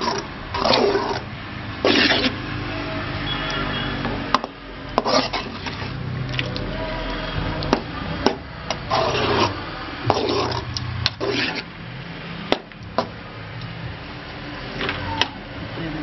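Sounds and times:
metal spatula scraping rice: 0:01.8 - 0:02.4, 0:05.0 - 0:06.0, 0:08.9 - 0:11.7.

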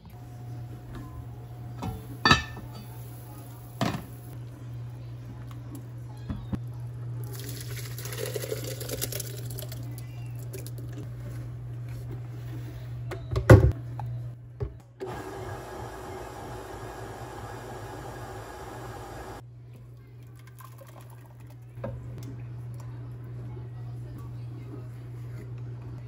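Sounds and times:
soup pouring into blender jar: 0:07.3 - 0:09.8
steady low hum: 0:13.7 - 0:19.7.

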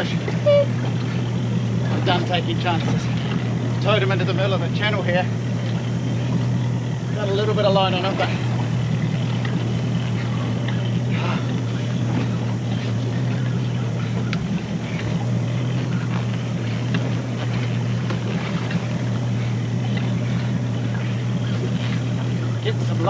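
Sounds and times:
outboard motor running: 0:00.0 - 0:23.0
water noise: 0:00.0 - 0:23.0
wind: 0:00.0 - 0:23.0.

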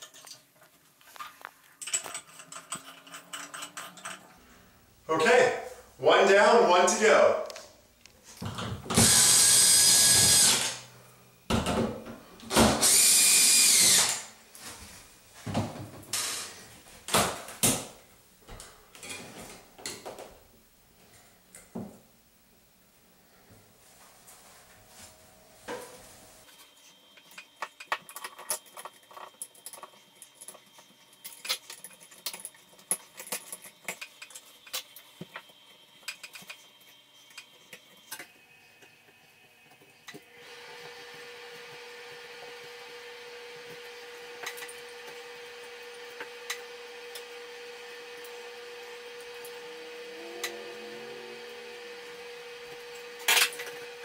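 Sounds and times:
steady hum: 0:49.5 - 0:54.0.

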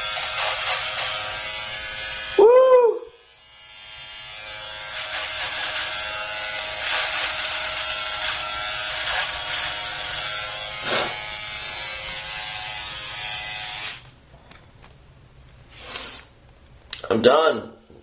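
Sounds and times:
electric shaver buzzing: 0:00.0 - 0:02.4, 0:03.2 - 0:14.1.

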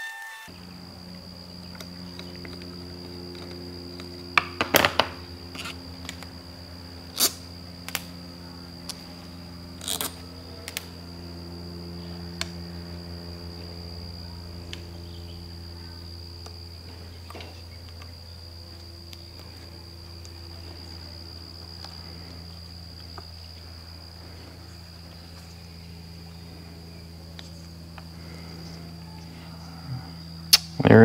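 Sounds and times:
steady low hum: 0:00.0 - 0:31.0
thin high whine: 0:00.0 - 0:31.0.

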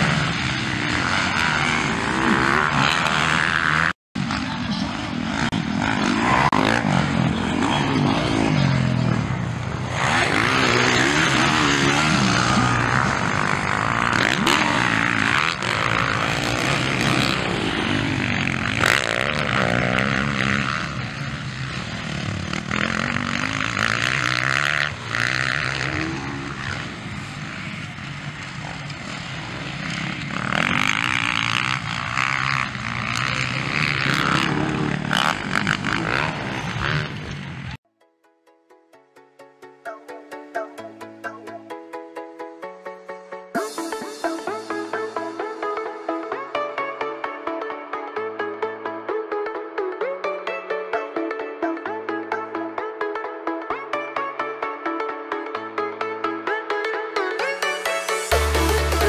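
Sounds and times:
dirt bike engines revving: 0:00.0 - 0:37.8, 0:57.6 - 0:59.0.

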